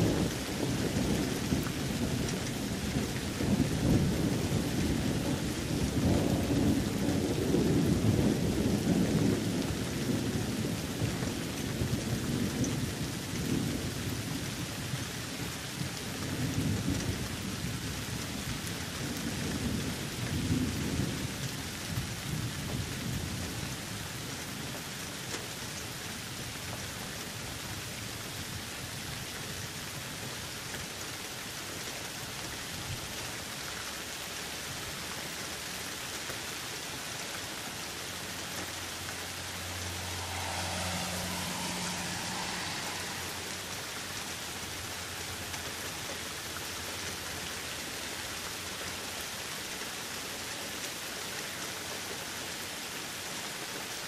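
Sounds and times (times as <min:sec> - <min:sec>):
rolling thunder: 0:00.0 - 0:12.9, 0:39.0 - 0:45.2
steady rain: 0:00.0 - 0:54.0.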